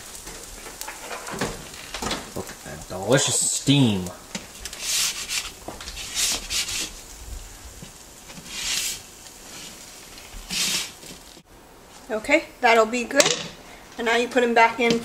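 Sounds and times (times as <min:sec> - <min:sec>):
spatula scraping a metal pan: 0:04.7 - 0:07.0, 0:08.3 - 0:11.0.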